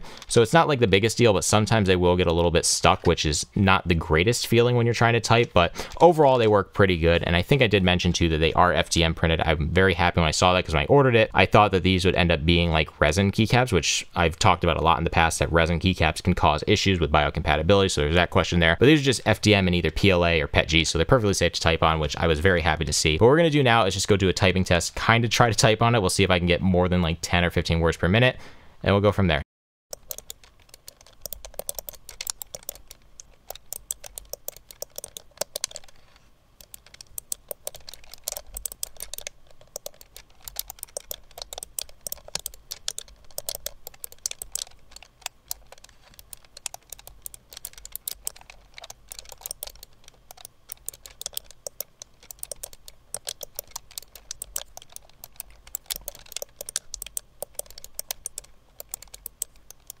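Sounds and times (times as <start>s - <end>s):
fast typing on keyboard: 29.9s - 60.0s.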